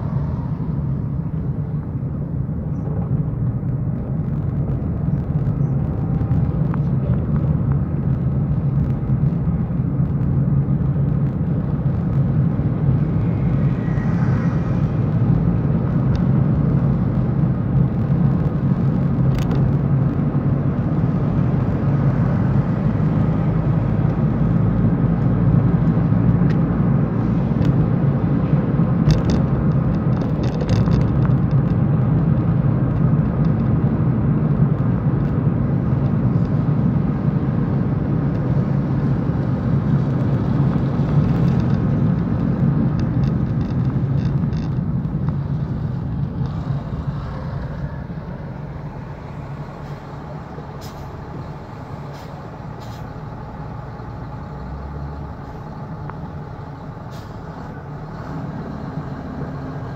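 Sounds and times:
car driving on wet road: 0:00.0 - 0:59.9.

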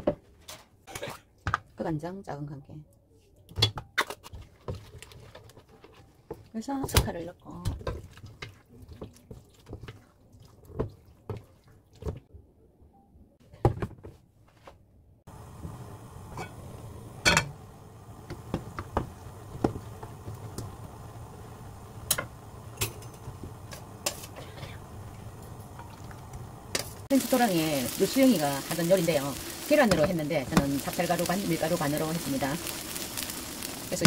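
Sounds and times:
batter stirred in a bowl: 0:04.3 - 0:06.6, 0:07.8 - 0:12.2
oil hissing in a frying pan: 0:15.3 - 0:34.0.

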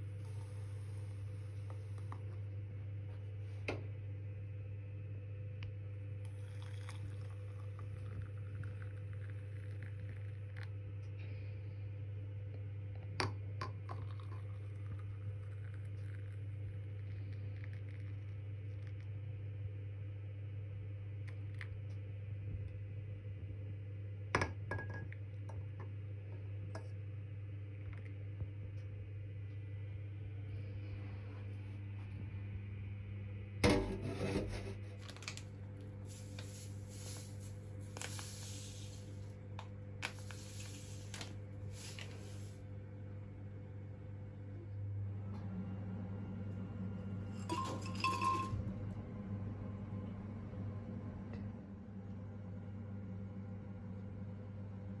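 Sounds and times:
coffee pouring into cups: 0:00.0 - 0:02.6, 0:06.0 - 0:11.4, 0:13.0 - 0:19.2, 0:34.4 - 0:42.7, 0:47.1 - 0:48.8
low hum: 0:00.0 - 0:55.0
soft scraping and rubbing: 0:33.8 - 0:35.3.

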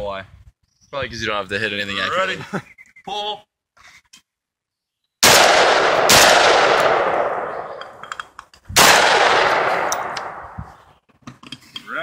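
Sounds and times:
shotgun shots echoing: 0:05.2 - 0:08.0, 0:08.8 - 0:10.6.

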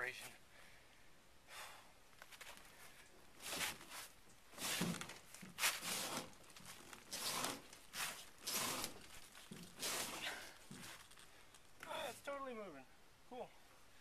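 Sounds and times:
boat hull scuffing: 0:03.4 - 0:11.0.

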